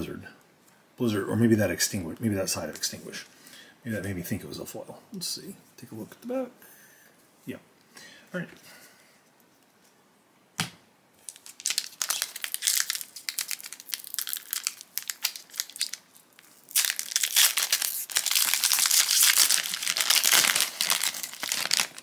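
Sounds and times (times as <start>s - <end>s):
foil wrapper crinkling and tearing: 11.2s - 22.0s.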